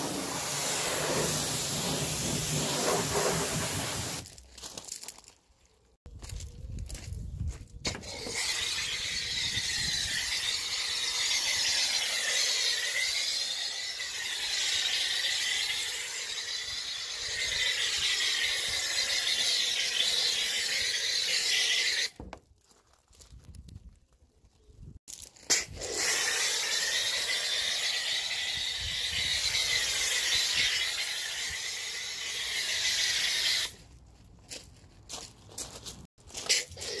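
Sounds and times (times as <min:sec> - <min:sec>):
foam lance spraying hiss: 0:00.0 - 0:04.2, 0:08.1 - 0:22.1, 0:25.5 - 0:33.7.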